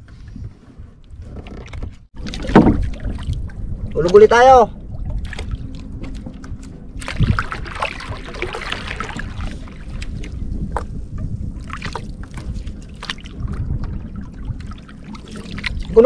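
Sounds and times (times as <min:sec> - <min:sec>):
wind rumbling on microphone: 0:00.0 - 0:16.0
dull thump: 0:02.3 - 0:03.0.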